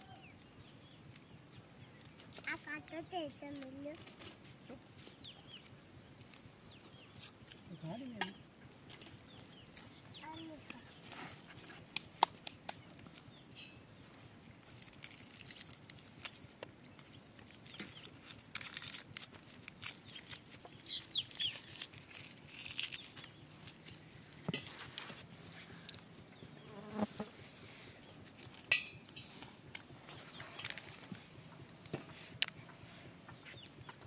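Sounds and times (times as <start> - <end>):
dry onion skins rustling: 0.0 - 26.6, 27.3 - 34.0.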